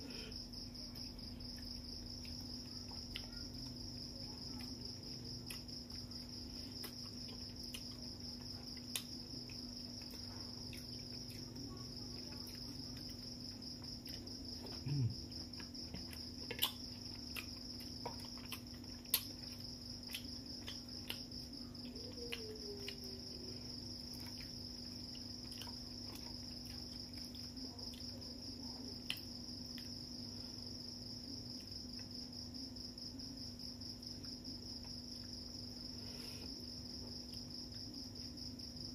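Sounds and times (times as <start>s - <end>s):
crickets chirping: 0.0s - 38.9s
eating clicks and smacks: 15.4s - 28.1s, 28.9s - 30.1s.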